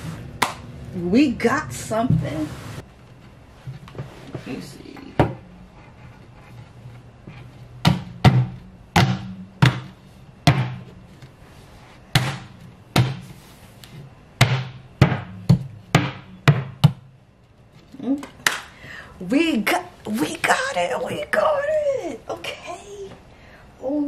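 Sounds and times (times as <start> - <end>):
fist pounding on a cabinet: 7.8 - 10.9, 12.1 - 13.2, 14.4 - 17.1.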